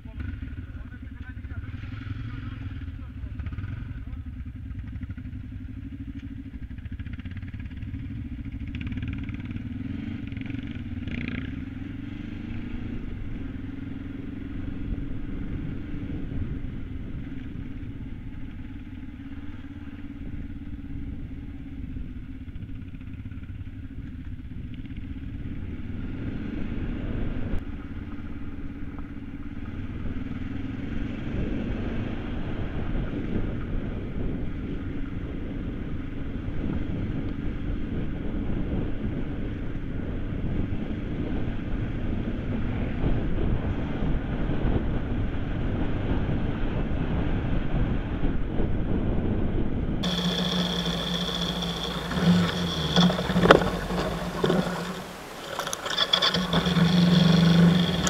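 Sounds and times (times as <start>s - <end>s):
motorcycle engine revving: 0.0s - 48.1s, 50.0s - 58.0s.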